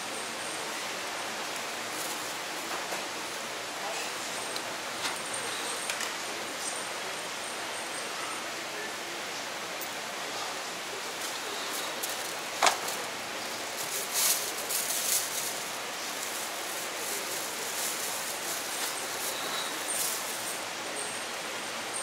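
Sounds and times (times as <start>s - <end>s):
steady background hiss: 0.0s - 22.0s
rustling: 11.0s - 20.7s.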